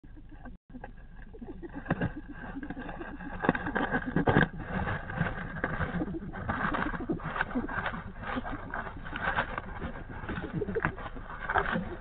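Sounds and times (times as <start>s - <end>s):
animal snuffling: 0.2s - 12.0s
rustling of dry leaves: 0.9s - 12.0s.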